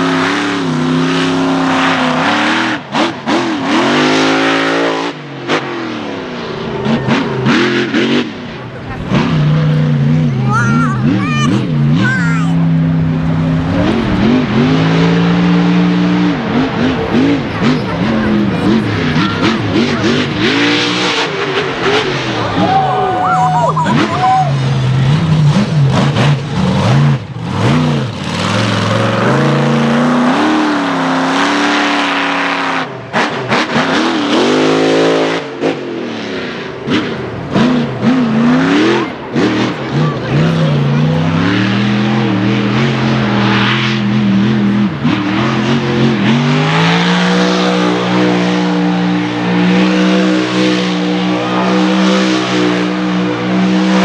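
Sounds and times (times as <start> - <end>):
monster truck engine revving: 0.0 - 54.0.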